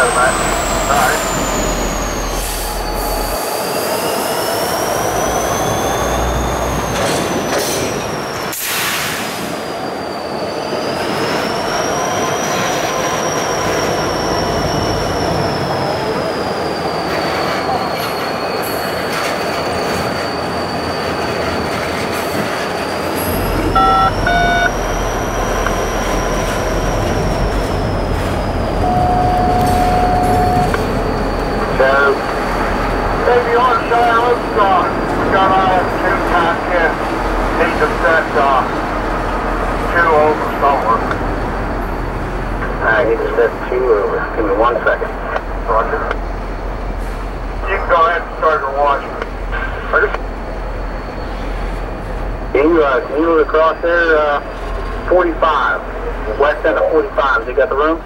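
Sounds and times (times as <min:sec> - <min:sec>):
deeper rumble: 0:00.0 - 0:03.4, 0:23.1 - 0:48.4
train rolling rumble: 0:00.0 - 0:58.0
train wheels squealing on rails: 0:00.0 - 0:58.0
short tones: 0:23.3 - 0:27.2, 0:28.8 - 0:31.0.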